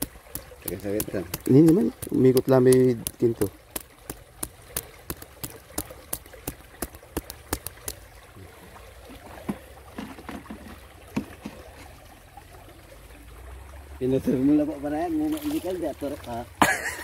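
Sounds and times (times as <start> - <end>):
sharp regular clicks: 0.0 - 8.0
stream trickling: 0.0 - 17.0.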